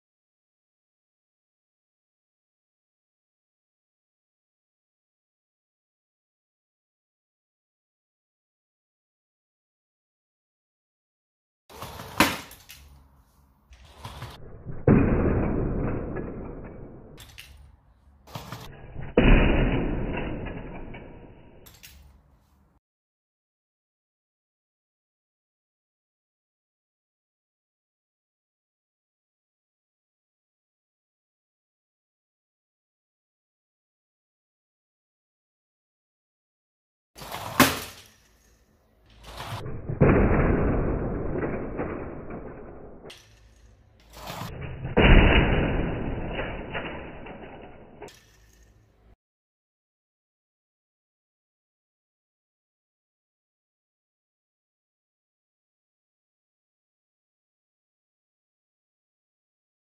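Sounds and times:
plastic model crashing: 0:11.7 - 0:13.0, 0:13.8 - 0:22.3, 0:37.2 - 0:49.0.

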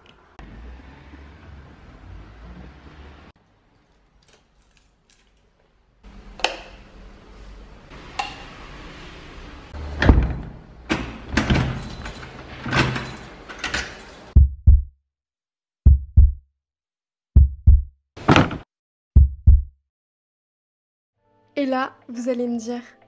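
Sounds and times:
heavy knocks and thumps: 0:17.4 - 0:18.6.

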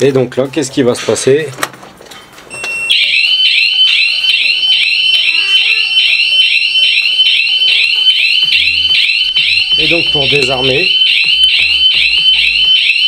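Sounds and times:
warbling alarm siren: 0:02.9 - 0:13.0.

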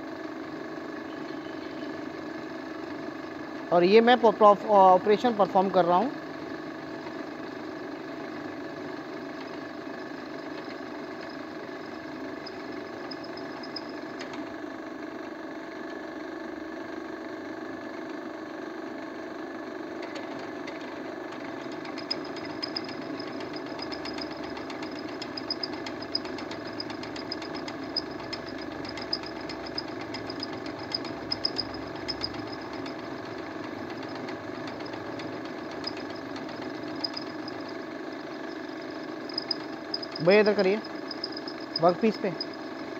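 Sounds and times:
drilling machine humming: 0:08.8 - 0:15.1, 0:20.2 - 0:42.9.

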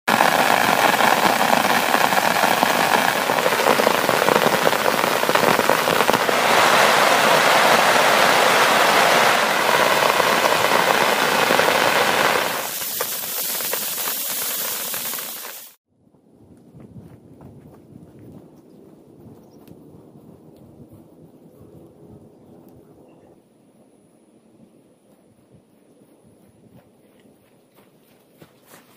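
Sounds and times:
heavy rain on tent fabric: 0:00.1 - 0:15.8.

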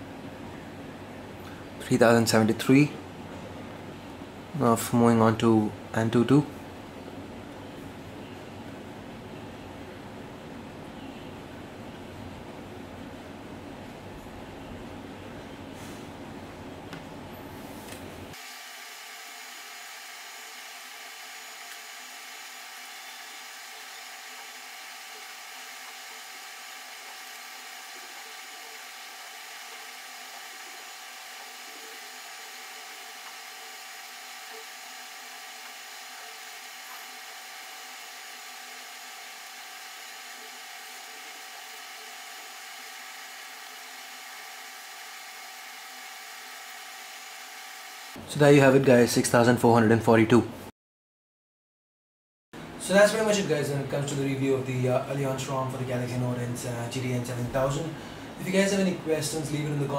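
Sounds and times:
high whirring hum: 0:00.0 - 0:50.0, 0:52.6 - 0:59.9.

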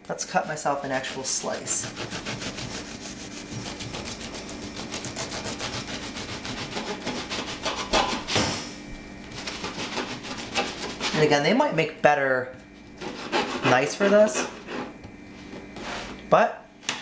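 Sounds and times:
knife sawing through crusty bread: 0:00.4 - 0:08.0, 0:09.3 - 0:11.3, 0:13.0 - 0:15.0.

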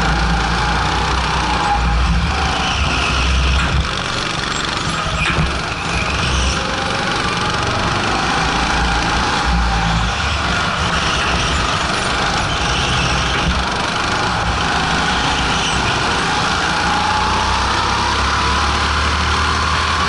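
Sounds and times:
go-kart engine running hard: 0:00.0 - 0:20.0.

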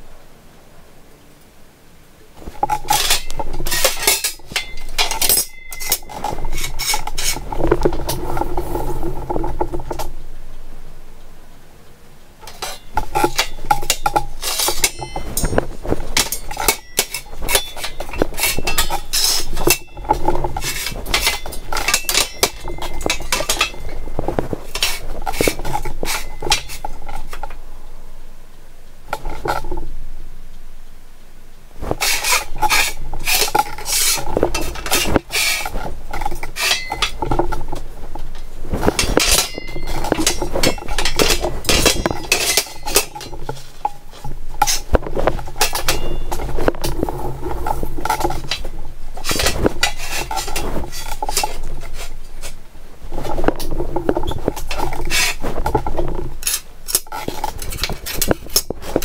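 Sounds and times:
steel rails clanking on metal: 0:02.4 - 0:10.1, 0:12.4 - 0:27.5, 0:31.9 - 0:37.8, 0:38.8 - 0:52.6.

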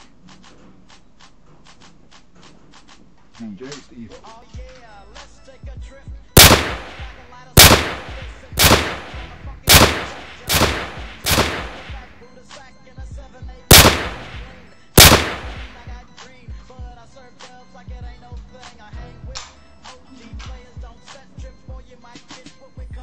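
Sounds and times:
quiet background music: 0:00.0 - 0:23.0
pistol gunshots: 0:06.4 - 0:12.2, 0:13.7 - 0:15.9.

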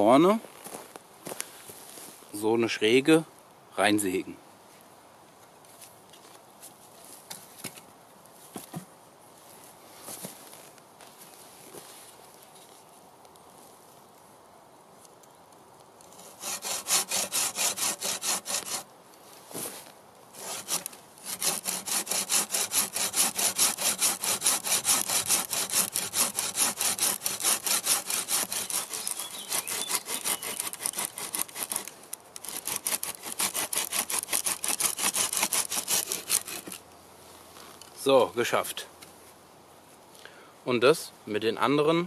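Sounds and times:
hand saw cutting wood: 0:16.1 - 0:18.9, 0:20.4 - 0:36.8.

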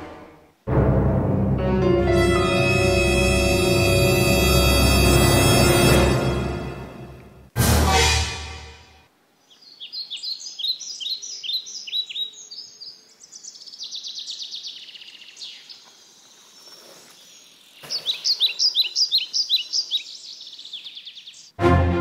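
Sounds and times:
songbirds chirping: 0:09.3 - 0:21.6.

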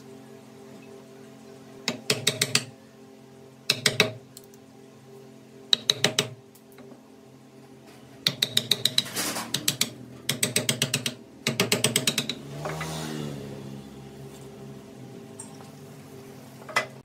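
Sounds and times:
rapid mechanical clicking: 0:08.2 - 0:12.4.

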